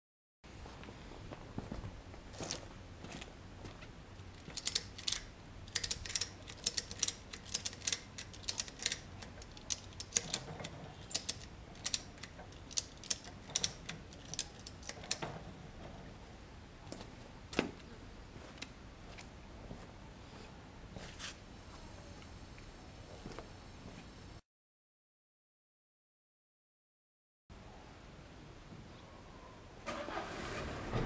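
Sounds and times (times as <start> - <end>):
ratchet strap pawl clicking: 4.5 - 15.2.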